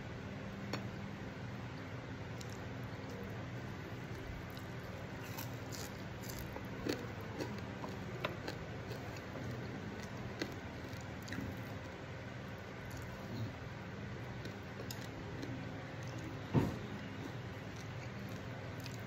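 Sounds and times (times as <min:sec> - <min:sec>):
steady low hum: 0:00.0 - 0:19.0
person chewing food: 0:04.0 - 0:16.4, 0:17.2 - 0:19.0.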